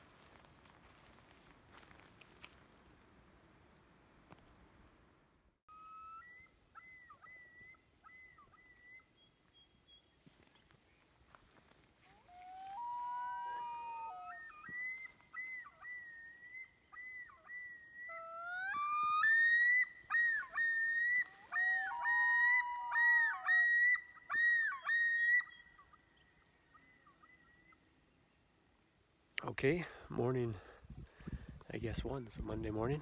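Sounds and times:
loons calling: 0:05.7 - 0:10.1, 0:11.9 - 0:28.2.

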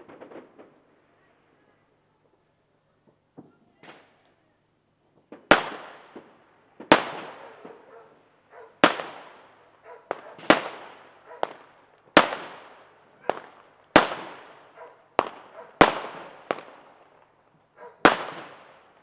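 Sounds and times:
small firework pops: 0:00.0 - 0:00.8, 0:03.0 - 0:04.4, 0:05.1 - 0:07.9, 0:10.1 - 0:14.6, 0:15.2 - 0:17.3, 0:18.0 - 0:18.8
loud firework bangs: 0:05.2 - 0:07.9, 0:08.6 - 0:17.0, 0:17.8 - 0:19.0.

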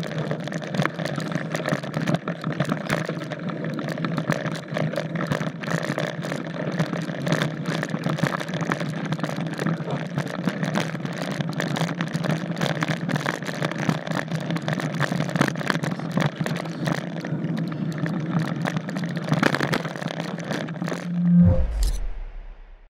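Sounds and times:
steady low hum: 0:20.8 - 0:22.9.

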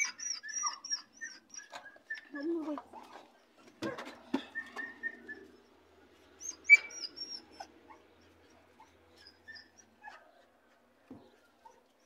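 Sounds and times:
small dog whimpering: 0:00.0 - 0:03.2, 0:06.4 - 0:10.2.

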